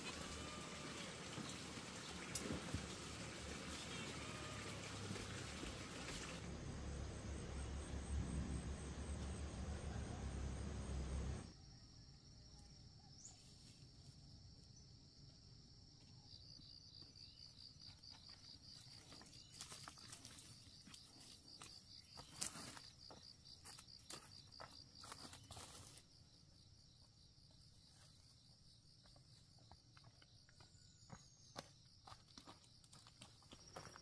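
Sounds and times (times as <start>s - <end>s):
low rumble: 6.4s - 11.5s.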